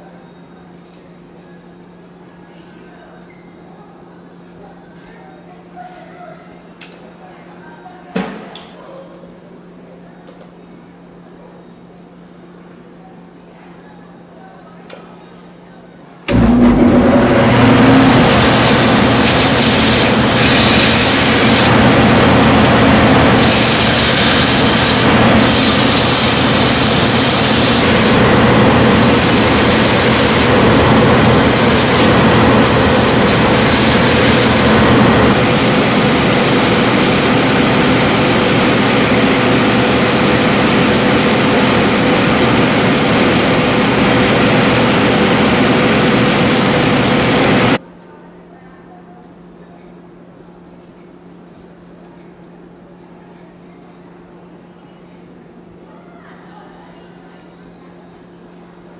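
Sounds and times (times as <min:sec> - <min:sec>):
motor hum: 0:16.3 - 0:47.8
sanding wheels grinding: 0:16.3 - 0:47.8.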